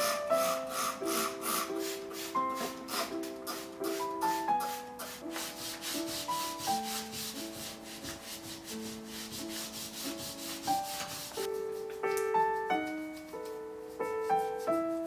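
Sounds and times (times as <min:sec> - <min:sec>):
rag rubbing metal frame: 0:00.0 - 0:11.5
light melodic background music: 0:00.0 - 0:15.0.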